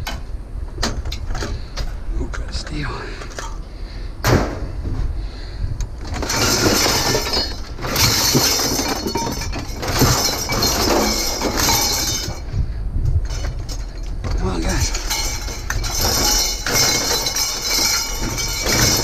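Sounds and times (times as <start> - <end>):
hard objects clattering: 6.0 - 12.5, 13.2 - 19.0.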